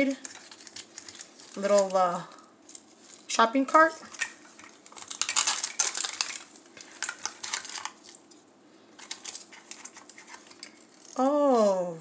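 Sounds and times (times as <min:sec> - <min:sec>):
plastic pieces clicking and clattering: 0:05.0 - 0:08.0.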